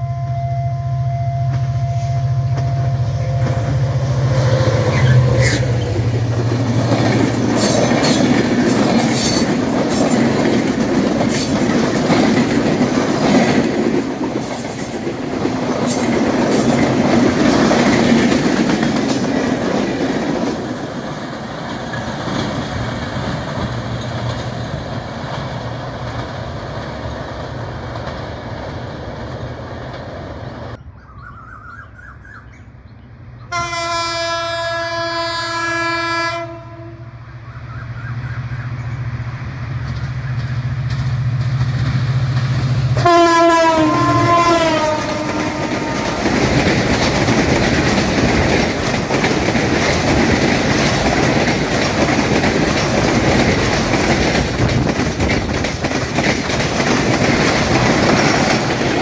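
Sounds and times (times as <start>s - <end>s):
locomotive horn blast: 0.0s - 6.0s, 33.5s - 37.2s, 43.0s - 46.3s
train wheels clattering over rails: 1.6s - 30.8s, 39.7s - 59.0s.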